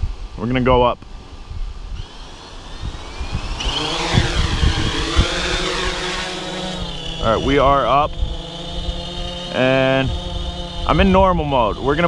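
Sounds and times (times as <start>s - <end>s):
drone propellers whining: 1.3s - 12.0s.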